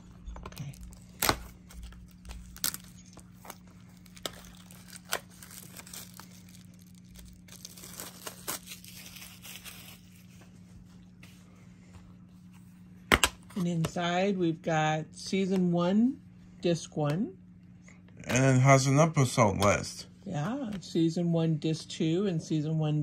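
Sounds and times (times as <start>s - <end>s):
plastic shrink wrap tearing: 0.4s - 10.4s.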